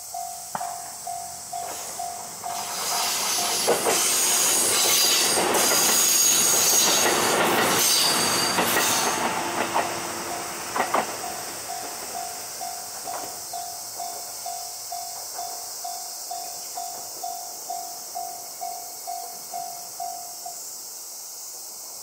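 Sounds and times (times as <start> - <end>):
level-crossing bell dinging: 0.0 - 7.2, 10.2 - 20.6
diesel railcar passing: 0.0 - 22.0
train wheels clacking on rail joints: 0.4 - 19.7.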